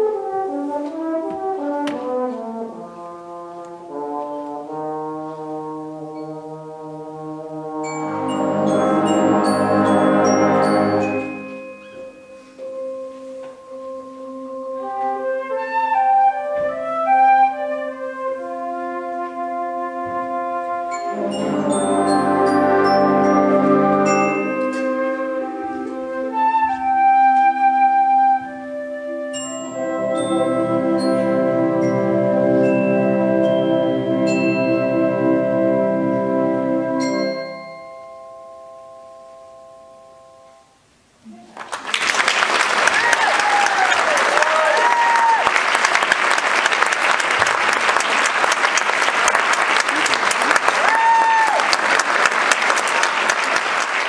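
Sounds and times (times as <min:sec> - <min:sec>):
concert band playing: 0:07.6 - 0:13.8, 0:19.2 - 0:28.7, 0:29.3 - 0:37.4
flutes: 0:07.9 - 0:35.0
bell-like mallet strikes: 0:08.0 - 0:12.4
audience applauding: 0:41.5 - 0:54.0.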